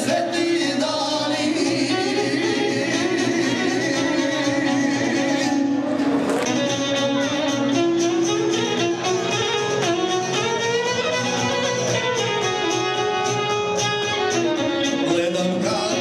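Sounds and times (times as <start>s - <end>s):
violin melody: 1.7s - 16.0s.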